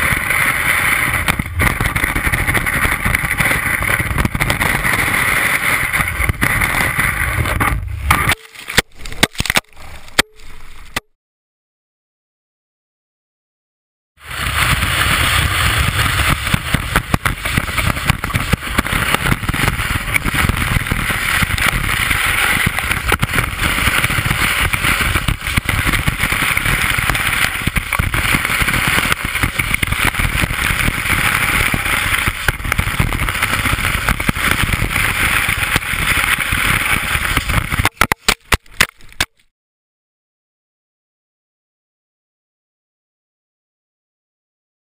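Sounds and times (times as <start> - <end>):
wind on microphone: 0.0 - 8.3, 14.2 - 38.0
ski scraping over snow: 0.0 - 8.8, 14.2 - 38.0.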